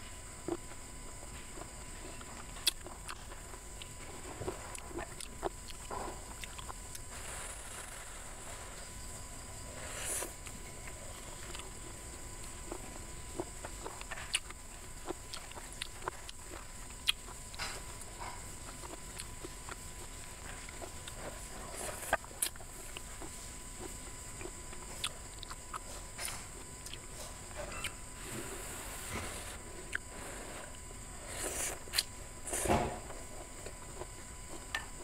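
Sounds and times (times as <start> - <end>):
woman chewing and smacking: 0.4 - 7.2, 10.2 - 28.2, 29.9 - 32.2.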